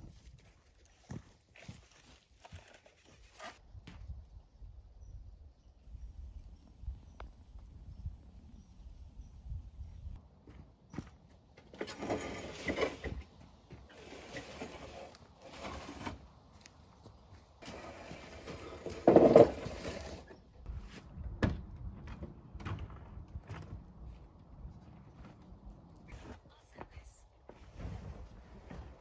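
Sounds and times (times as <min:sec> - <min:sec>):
metal table scraping on dirt: 0:11.7 - 0:16.3, 0:17.6 - 0:21.0.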